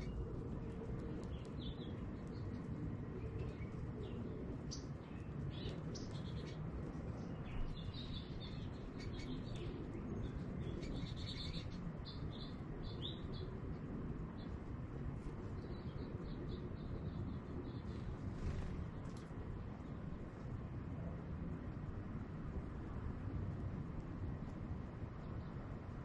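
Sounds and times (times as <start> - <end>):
birds chirping and twittering: 0.0 - 20.3
low background rumble: 0.0 - 26.0.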